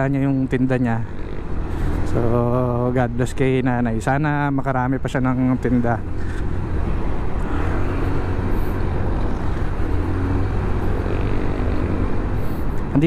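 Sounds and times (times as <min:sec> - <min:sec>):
road and wind noise: 0:00.0 - 0:13.0
motor scooter engine running: 0:06.0 - 0:13.0.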